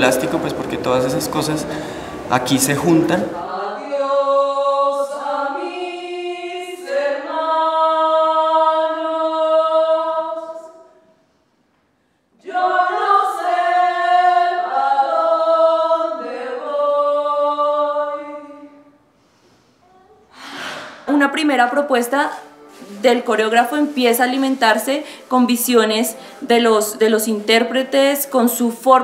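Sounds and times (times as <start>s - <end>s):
group singing a cappella: 0.0s - 11.2s, 12.3s - 19.2s.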